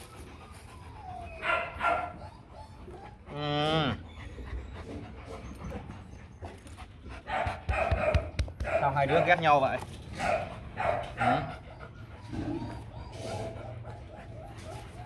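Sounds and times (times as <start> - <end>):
dog barking: 1.4 - 2.2, 7.3 - 9.5, 10.2 - 11.5.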